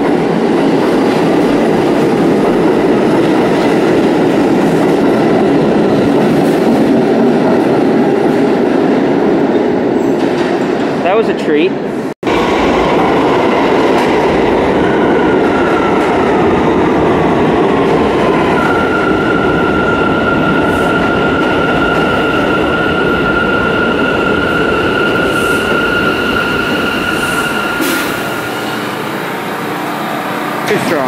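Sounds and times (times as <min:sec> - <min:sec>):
high train whine: 0:00.0 - 0:31.0.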